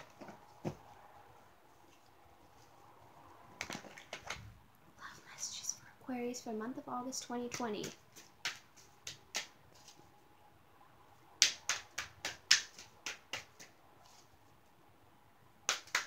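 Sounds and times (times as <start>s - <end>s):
cards being shuffled: 7.5s - 10.0s.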